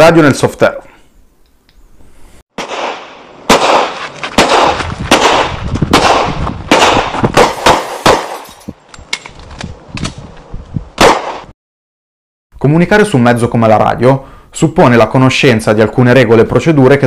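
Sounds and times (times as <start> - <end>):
gunshots with long echo: 2.5 - 8.4, 11.0 - 11.5.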